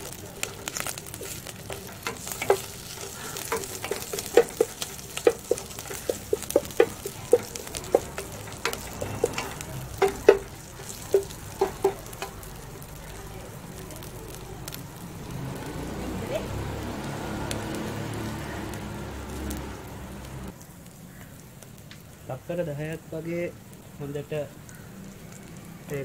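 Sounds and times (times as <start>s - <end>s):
wooden spatula knocking pot: 0.0s - 13.0s
food sizzling in oil: 0.0s - 26.0s.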